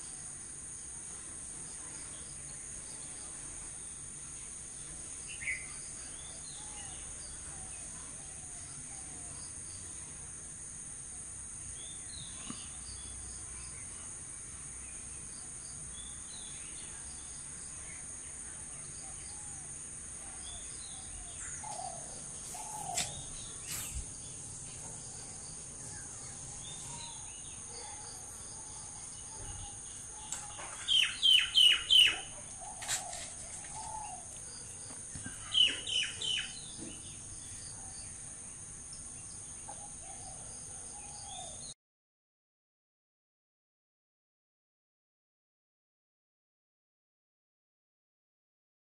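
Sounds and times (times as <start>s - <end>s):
insects droning: 0.0s - 41.7s
birds chirping: 20.3s - 38.2s.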